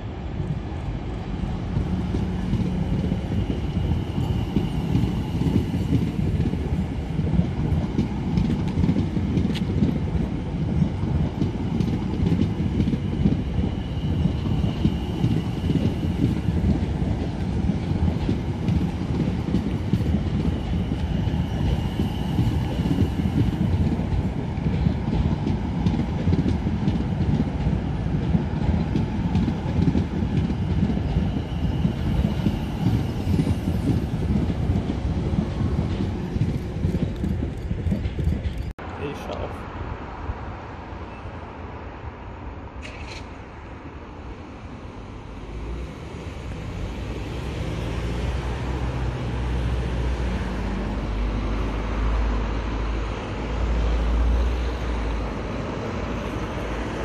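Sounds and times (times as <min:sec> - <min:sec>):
train wheels rumbling on rail: 0:00.0 - 0:39.5, 0:42.5 - 0:57.0
faint high squeal: 0:02.8 - 0:06.2, 0:31.0 - 0:34.0, 0:41.0 - 0:41.5.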